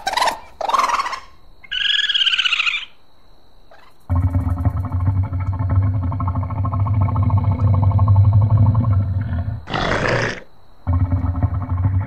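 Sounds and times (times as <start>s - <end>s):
deep animal growl: 4.1s - 12.0s.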